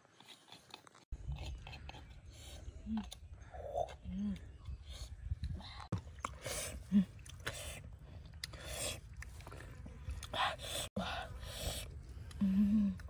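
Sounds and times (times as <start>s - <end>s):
person chewing: 0.0s - 13.0s
person humming: 12.3s - 13.0s.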